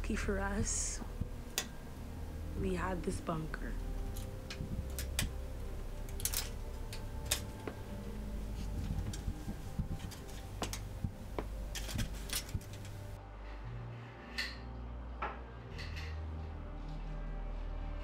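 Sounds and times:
low steady hum: 0:00.0 - 0:13.4.

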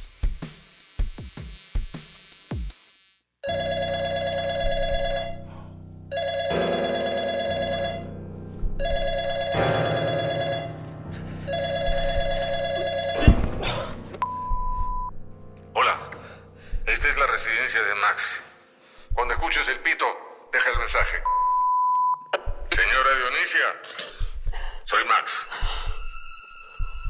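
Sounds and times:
telephone ringing: 0:03.4 - 0:05.5, 0:06.1 - 0:08.1, 0:08.8 - 0:10.9, 0:11.5 - 0:13.3
short steady beep: 0:14.2 - 0:15.1, 0:21.2 - 0:22.3.

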